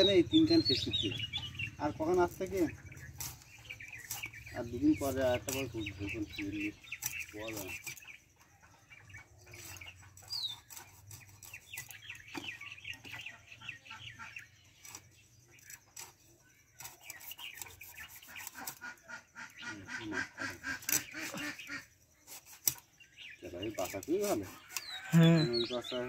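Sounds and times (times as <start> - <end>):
bird chirping: 0.0 - 26.0
fish scales rasping against blade: 3.0 - 8.0, 9.6 - 12.4, 14.8 - 19.0, 19.9 - 23.0.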